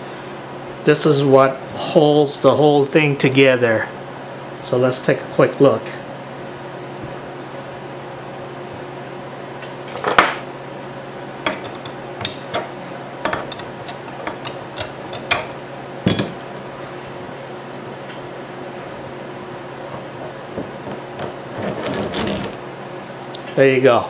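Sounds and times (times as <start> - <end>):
steel parts clinking and knocking: 13.3 - 16.5.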